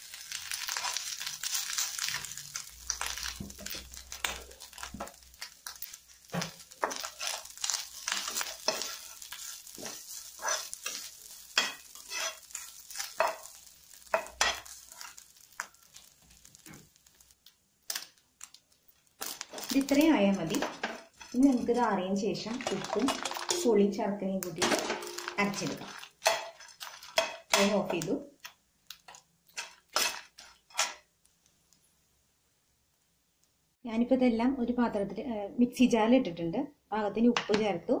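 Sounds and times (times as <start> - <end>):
food sizzling in hot oil: 0.0 - 31.4
spatula scraping a pan: 0.4 - 16.8, 20.5 - 21.7, 25.0 - 27.9, 29.1 - 31.0.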